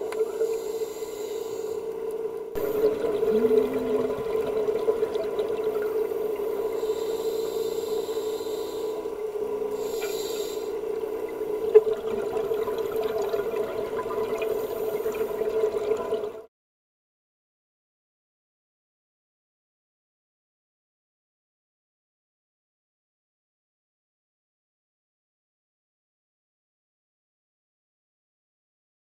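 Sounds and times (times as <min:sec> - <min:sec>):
steady underwater hum: 0:00.0 - 0:16.5
underwater water noise: 0:00.0 - 0:16.5.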